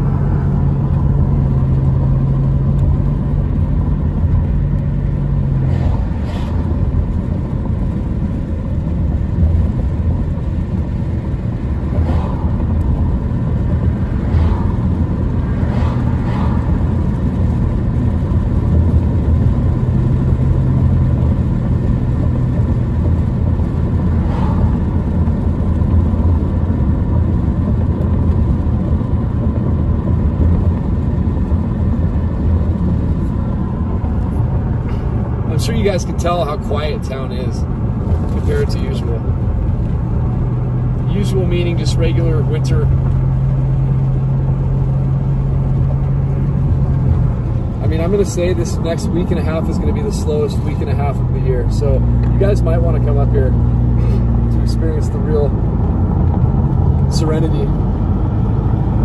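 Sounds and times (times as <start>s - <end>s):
car engine and road rumble: 0.0s - 59.0s.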